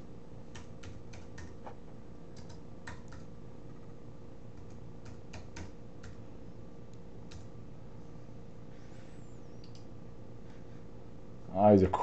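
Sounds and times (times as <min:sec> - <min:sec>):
low electrical hum: 0:00.0 - 0:12.0
keyboard key clicks: 0:02.4 - 0:03.3.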